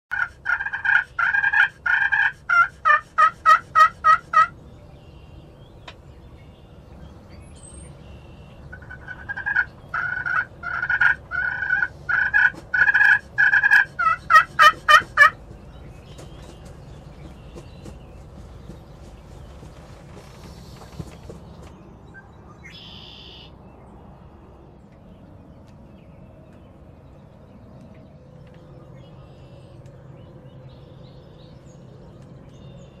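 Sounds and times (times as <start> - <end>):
wild turkey calling: 0.1 - 4.6, 8.1 - 19.2, 22.6 - 23.5.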